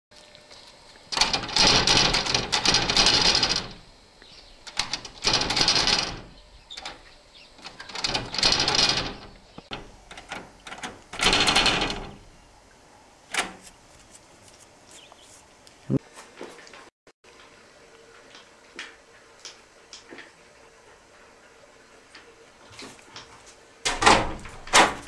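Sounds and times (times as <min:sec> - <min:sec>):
metal door handle rattling: 0:01.1 - 0:03.9, 0:04.6 - 0:12.4, 0:13.3 - 0:13.6, 0:23.9 - 0:25.0.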